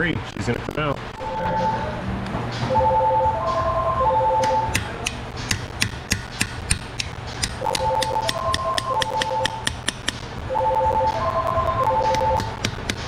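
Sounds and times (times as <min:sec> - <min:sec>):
melody of held notes: 0:01.2 - 0:04.8
hammer tapping steel chisel: 0:04.7 - 0:10.2.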